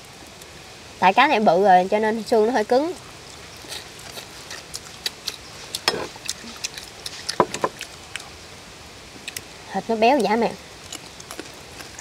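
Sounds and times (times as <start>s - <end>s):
crunching crispy food: 3.2s - 8.4s, 10.1s - 12.0s.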